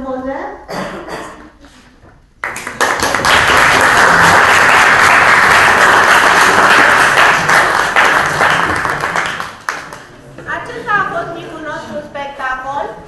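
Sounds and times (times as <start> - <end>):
audience applauding: 2.4 - 10.2.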